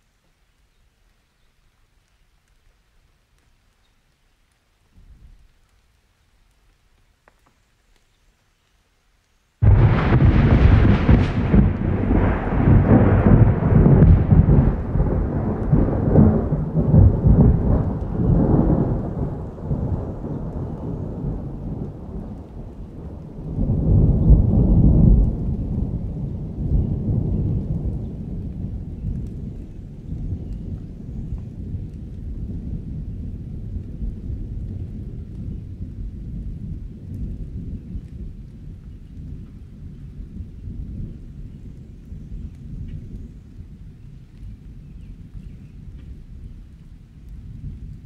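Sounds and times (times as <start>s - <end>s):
steady rain: 0.0s - 48.0s
thunder rumbling: 9.6s - 48.0s.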